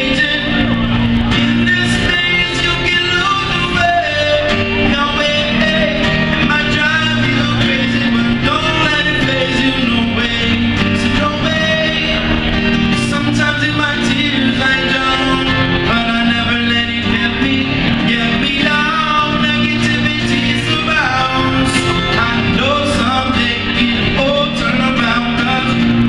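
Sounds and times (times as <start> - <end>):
acoustic guitar: 0.0 - 26.0
man singing: 0.0 - 26.0.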